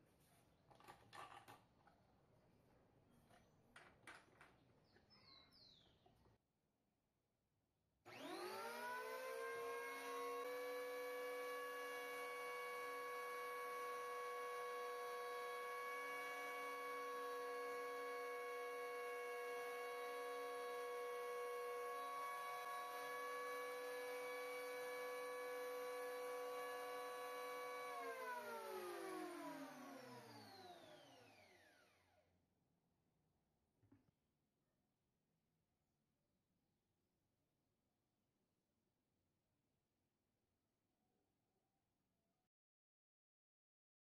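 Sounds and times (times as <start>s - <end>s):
electric planer motor whining: 8.1s - 32.2s.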